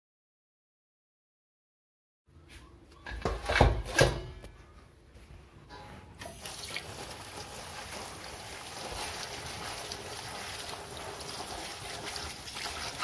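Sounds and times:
tap water running onto leaves: 6.3 - 13.0.

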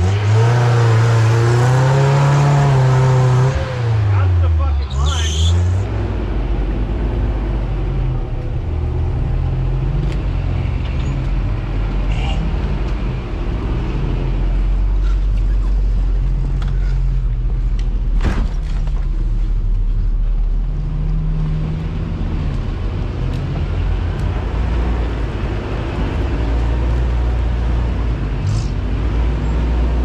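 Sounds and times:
off-road vehicle engine running: 0.0 - 30.0.

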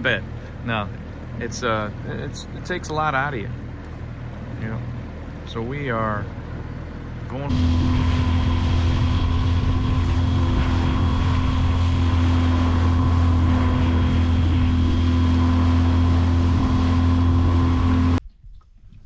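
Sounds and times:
outboard motor droning: 0.0 - 18.2
water noise: 0.0 - 19.0
wind noise: 7.5 - 19.0.

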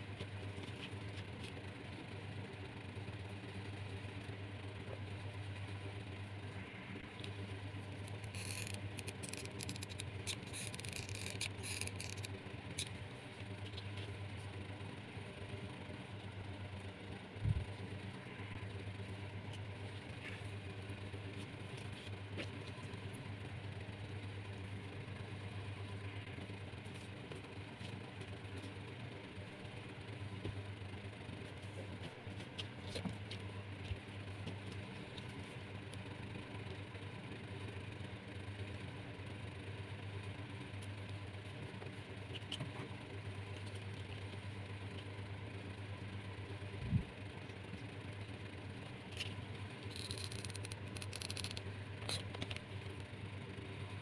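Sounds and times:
low machine hum: 0.0 - 54.0.

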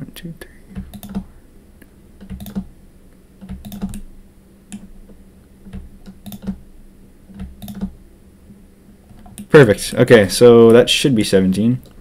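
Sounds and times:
mouse and keyboard clicks: 0.8 - 1.3, 2.2 - 2.7, 3.4 - 4.1, 5.7 - 6.6, 7.3 - 7.9, 9.1 - 9.5.

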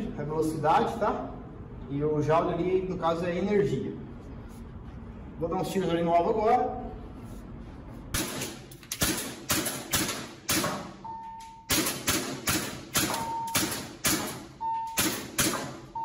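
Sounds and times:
airsoft pistol shots: 8.2 - 11.0, 11.7 - 15.9.

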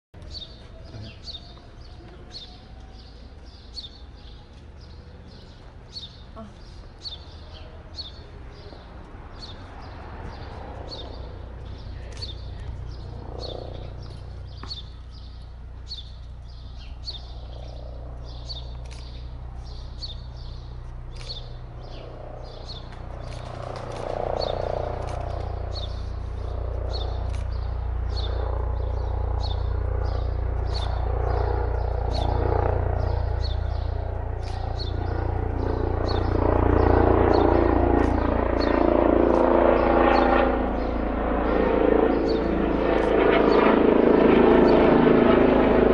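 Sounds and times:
helicopter rotor drone: 0.2 - 45.9
small bird chirping: 9.5 - 37.4.

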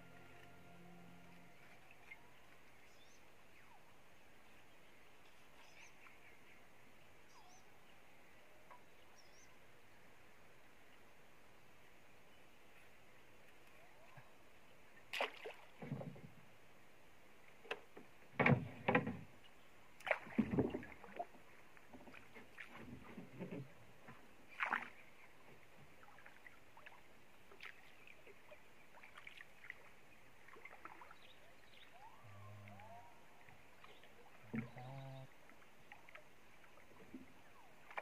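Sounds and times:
paddle splashes: 15.0 - 16.4, 20.0 - 32.0, 32.7 - 38.0
knocks against wooden hull: 18.0 - 19.3.

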